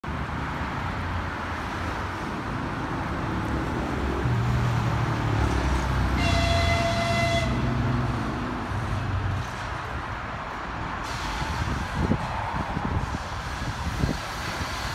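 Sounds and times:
low rumble of engines: 0.0s - 14.9s
locomotive horn blast: 6.1s - 8.0s.

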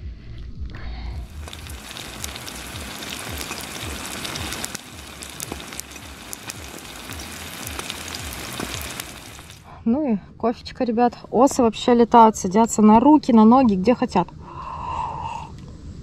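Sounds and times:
food sizzling in frying pan: 1.3s - 9.6s.

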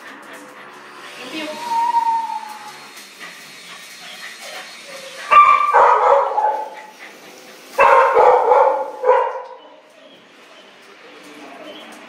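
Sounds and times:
dog barking: 5.3s - 6.9s, 7.8s - 9.8s.

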